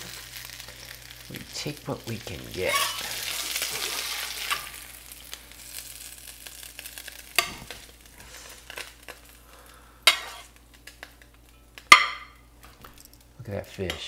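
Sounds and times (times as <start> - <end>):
grease sizzling in a skillet: 0.0 - 14.0
metal spatula sliding under fish: 10.0 - 10.5.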